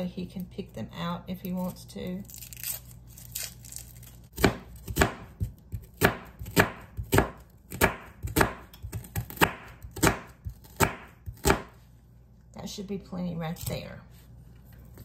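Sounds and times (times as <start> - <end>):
knife chopping onion on board: 4.3 - 11.8.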